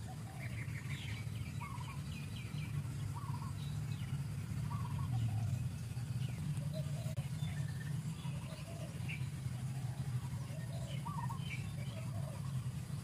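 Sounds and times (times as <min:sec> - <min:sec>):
short warbling bird call: 0:00.0 - 0:12.8
small birds chirping: 0:00.0 - 0:13.0
steady low hum: 0:00.0 - 0:13.0.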